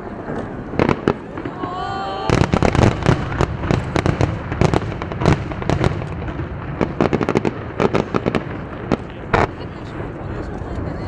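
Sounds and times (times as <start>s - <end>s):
fireworks bangs and cracks: 0.0s - 11.0s.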